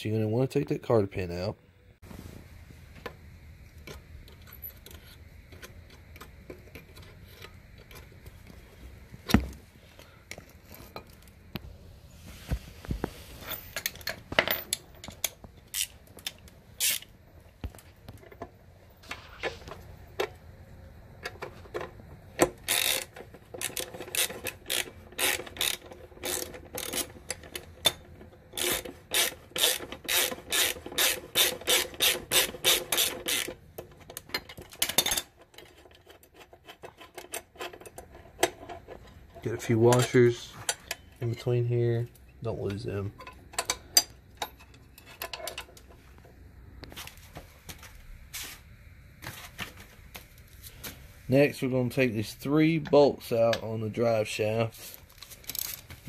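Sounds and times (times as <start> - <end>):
socket ratchet clicking: 15.2 - 17.1, 22.4 - 33.6.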